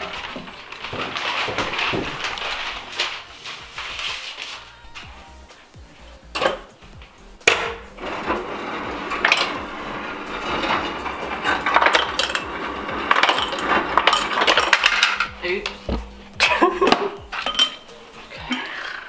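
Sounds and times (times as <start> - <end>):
ice cubes clattering into glass: 10.4 - 15.3.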